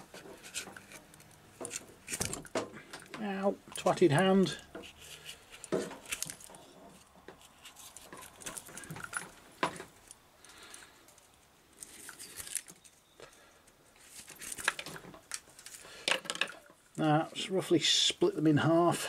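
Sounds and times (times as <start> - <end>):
steel wires jingling and scratching: 0.0 - 13.2, 14.0 - 15.8.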